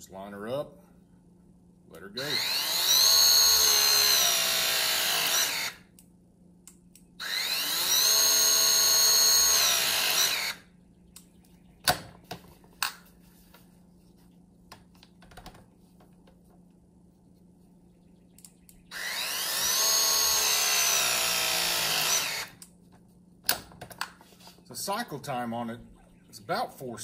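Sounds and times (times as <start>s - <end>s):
press tool motor whine: 2.4s - 5.8s, 7.2s - 10.6s, 18.9s - 22.6s.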